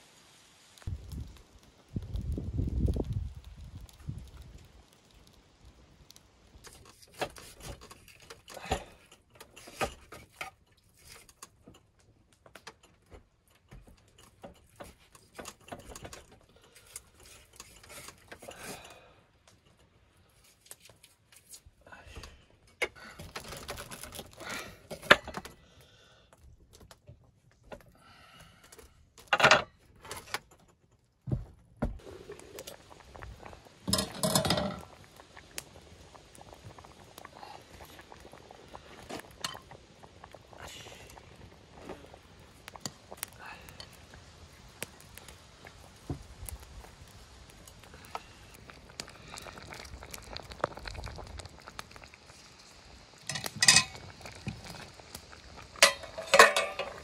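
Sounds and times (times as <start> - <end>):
cookware clattering: 33.9 - 34.8, 53.3 - 54.0, 55.8 - 57.0
knocks and clinks of cookware: 33.9 - 34.8, 53.3 - 54.0, 55.8 - 57.0.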